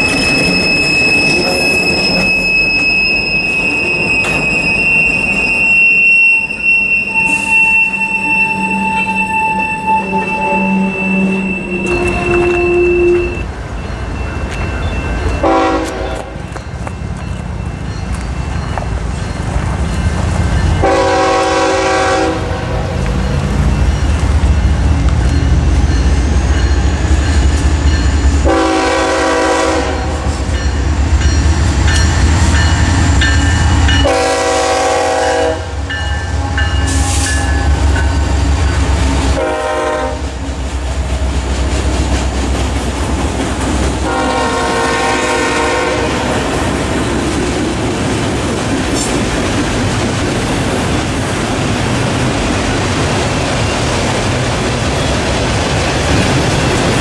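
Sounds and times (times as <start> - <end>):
train wheel clatter: 0.0 - 5.9, 40.2 - 44.6, 46.2 - 57.0
diesel locomotive engine rumble: 0.0 - 57.0
train horn blasts: 7.2 - 13.5, 15.4 - 16.4, 20.8 - 23.0, 28.4 - 30.5, 33.6 - 37.8, 39.3 - 40.4, 44.0 - 46.6.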